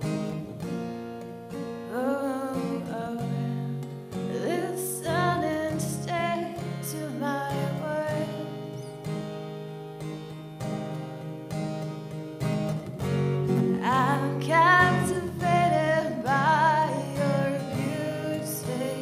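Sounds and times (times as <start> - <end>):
strummed acoustic guitar: 0.0 - 19.0
woman singing: 1.8 - 9.0, 13.6 - 19.0.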